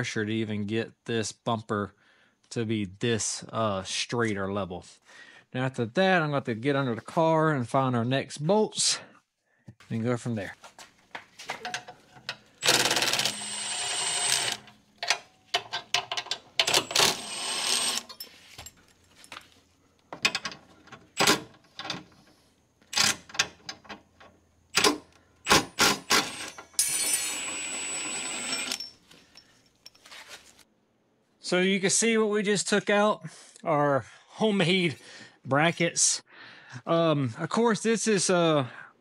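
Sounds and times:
metallic clinks and clanks: 11.6 - 19.6, 26.3 - 27.5, 28.3 - 30.4
power tool spinning out bolts: 12.2 - 18.3, 24.7 - 29.0.

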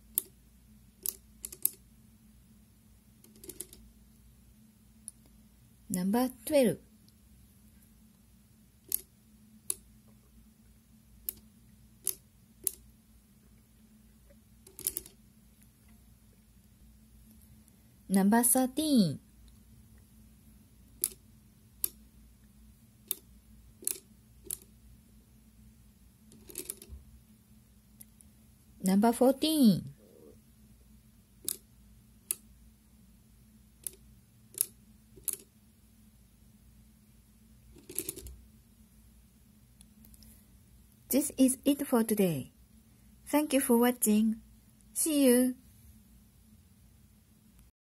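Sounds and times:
abacus beads clicking: 1.0 - 1.8, 3.2 - 3.8, 8.9 - 9.9, 11.2 - 12.8, 14.7 - 15.2, 21.0 - 21.2, 23.0 - 24.7, 26.3 - 27.0, 31.4 - 32.5, 33.8 - 35.5, 37.7 - 38.4.

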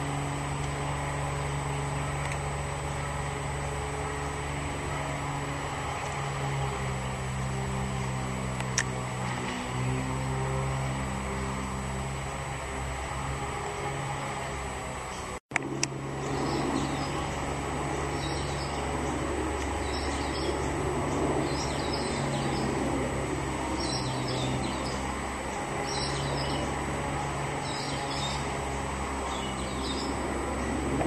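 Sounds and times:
small bird chirping: 16.2 - 22.8, 23.8 - 26.8, 27.6 - 30.7.

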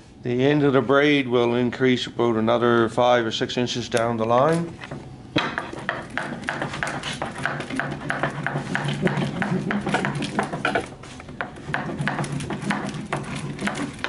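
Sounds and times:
wood block rolling on tabletop: 5.4 - 14.0.

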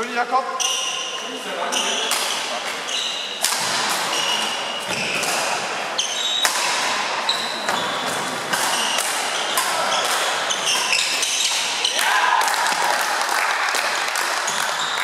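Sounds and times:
shoes squeaking on court floor: 0.6 - 12.0, 14.4 - 15.0
rackets striking shuttlecock: 2.0 - 2.8, 3.4 - 13.1.

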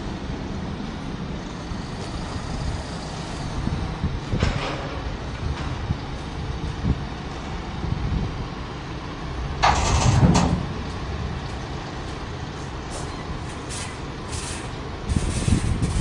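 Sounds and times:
diesel engine running low: 0.0 - 16.0
air brake hiss: 13.7 - 16.0.

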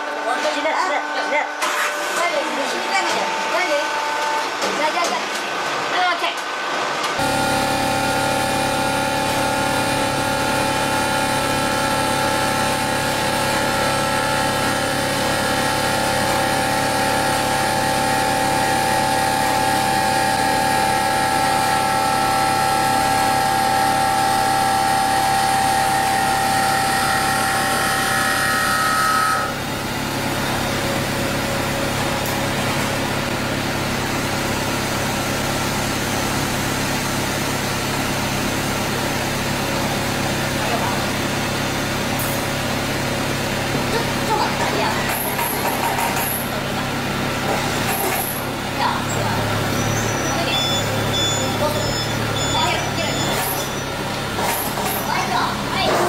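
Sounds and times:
high machine whine: 0.0 - 56.0
hydraulic press hum: 7.0 - 44.2.

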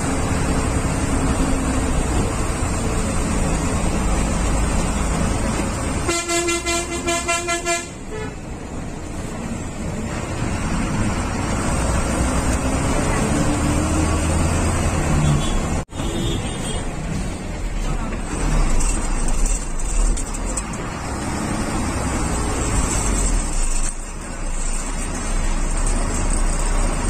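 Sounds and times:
bus engine: 0.0 - 27.0
road noise: 0.0 - 27.0
vehicle horn: 6.0 - 8.4, 15.2 - 16.9.

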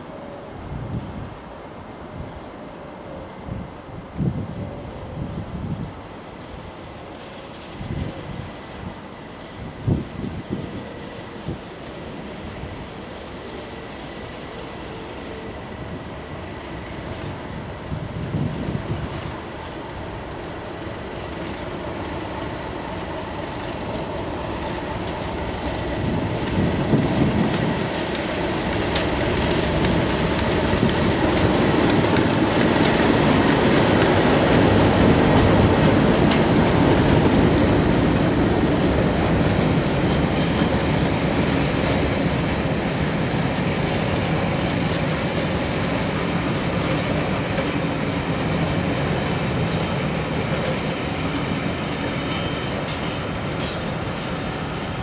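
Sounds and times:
diesel locomotive passing: 0.0 - 55.0
train wheels clattering on rails: 6.4 - 55.0.

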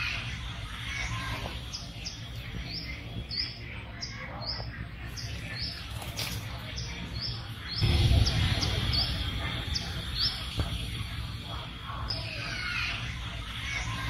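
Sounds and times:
wild birds chirping: 0.0 - 14.0
low background rumble: 7.2 - 14.0.

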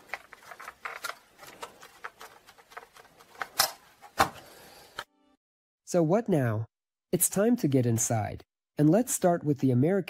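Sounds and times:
plastic case creaking and crackling: 0.0 - 4.4.

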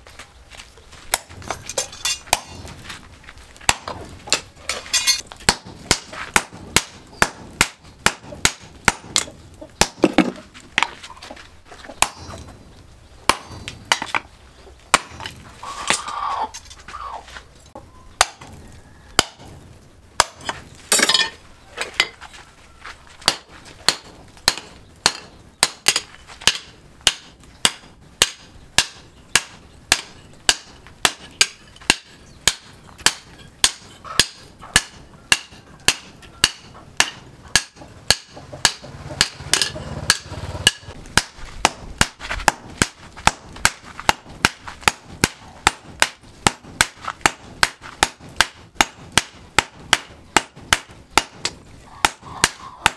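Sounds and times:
hammer striking steel on anvil: 1.1 - 2.7, 3.7 - 10.2, 12.0 - 12.4, 13.3 - 14.2, 23.2 - 52.9.

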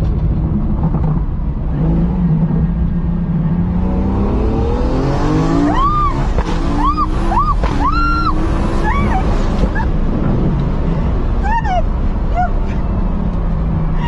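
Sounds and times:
car engine drone and road noise: 0.0 - 14.0
woman shrieking: 5.6 - 10.0, 11.4 - 12.8.

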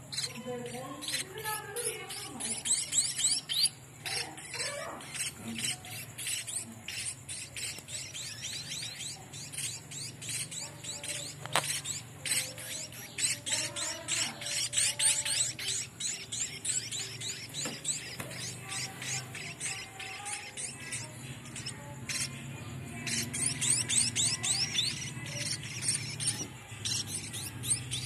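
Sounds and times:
chicks begging chirps: 0.0 - 28.0.

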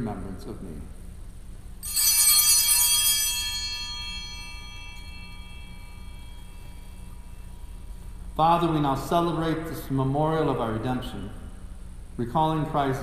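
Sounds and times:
altar bells ringing: 1.8 - 8.7.

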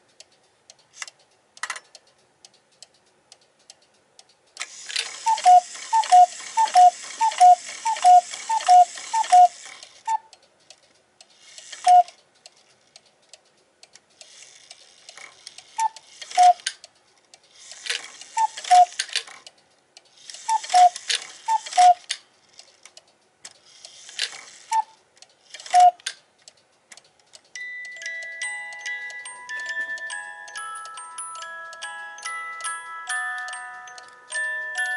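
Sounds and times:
music box playing: 5.2 - 9.6, 27.5 - 34.9.

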